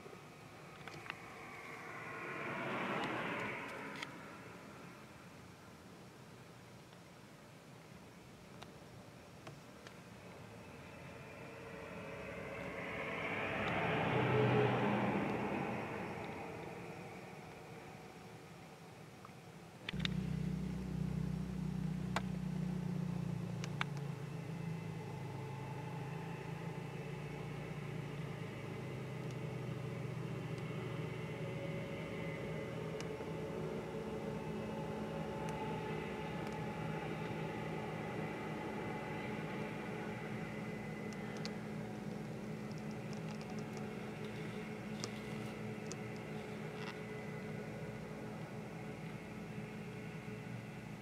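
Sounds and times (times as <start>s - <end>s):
engine droning: 0.0s - 5.4s, 9.9s - 51.0s
faint clicks: 0.7s - 1.8s, 41.1s - 47.0s.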